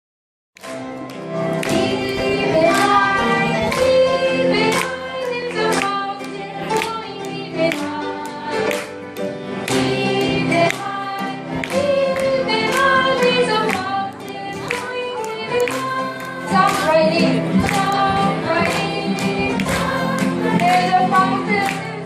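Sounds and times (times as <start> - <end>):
children's choir singing: 1.0 - 22.0.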